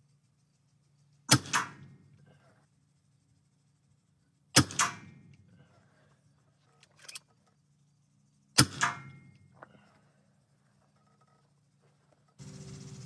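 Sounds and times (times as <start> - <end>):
air pistol shots: 1.3 - 2.0, 4.5 - 5.3, 8.5 - 9.3.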